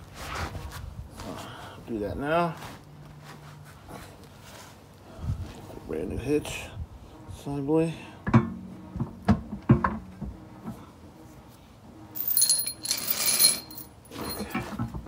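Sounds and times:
metal scraping: 0:12.2 - 0:14.5
metal hitch clanking: 0:12.2 - 0:14.7.

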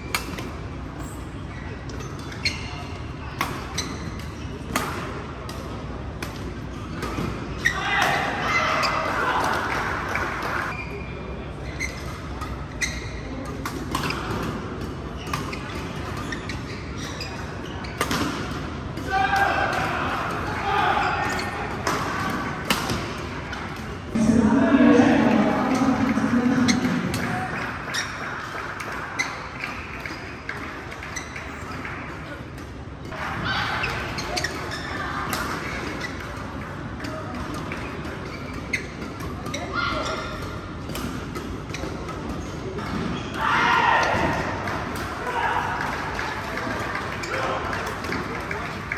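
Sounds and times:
shoes squeaking on court: 0:01.0 - 0:04.6, 0:10.7 - 0:18.6, 0:21.0 - 0:21.9, 0:25.2 - 0:28.4, 0:29.1 - 0:31.9, 0:33.8 - 0:35.0, 0:37.8 - 0:41.0, 0:41.6 - 0:43.4
racket hitting shuttlecock: 0:21.2 - 0:24.2.

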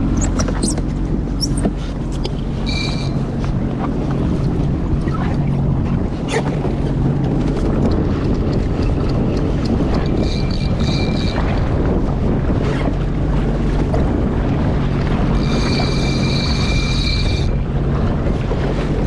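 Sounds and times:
jet ski engine running: 0:00.0 - 0:19.0
water noise: 0:00.0 - 0:19.0
wind buffeting the microphone: 0:00.0 - 0:19.0
thin high tone: 0:02.6 - 0:03.3.

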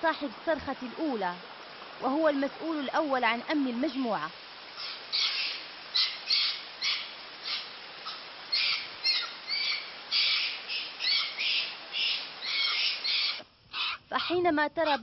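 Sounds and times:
harsh squawking animal calls: 0:04.8 - 0:15.0.

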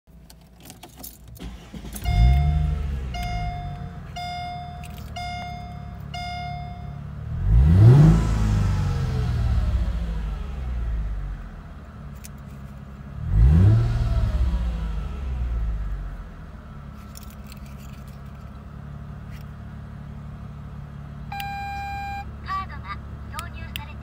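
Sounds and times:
car engine revving and idling: 0:01.3 - 0:24.0
short electronic beep: 0:02.0 - 0:07.0, 0:21.3 - 0:22.3.

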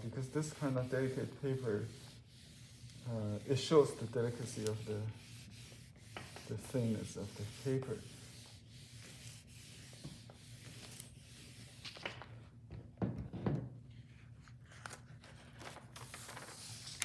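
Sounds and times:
iron rubbing on paper: 0:00.0 - 0:11.8.

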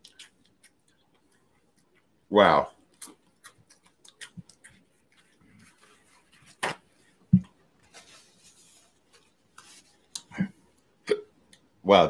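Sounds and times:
paper towel rustling: 0:05.0 - 0:10.1
man hiccuping: 0:10.3 - 0:11.4.

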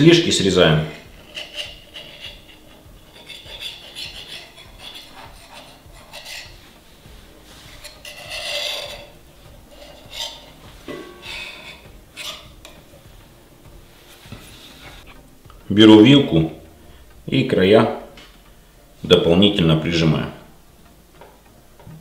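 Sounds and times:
knife scraping ceramic dish: 0:00.9 - 0:06.6, 0:07.7 - 0:12.8.

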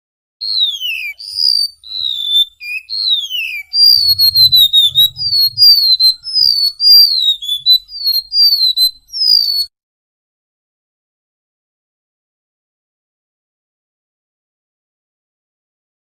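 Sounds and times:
bird singing whistled notes: 0:00.4 - 0:09.7.

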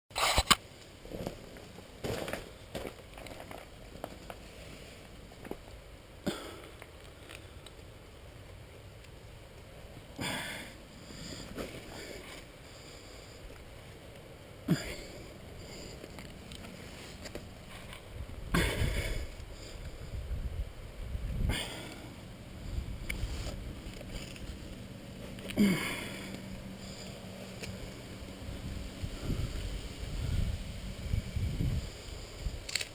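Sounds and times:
person breathing hard: 0:10.2 - 0:13.7, 0:14.7 - 0:20.5, 0:21.4 - 0:24.3, 0:25.5 - 0:27.5, 0:29.0 - 0:30.6.

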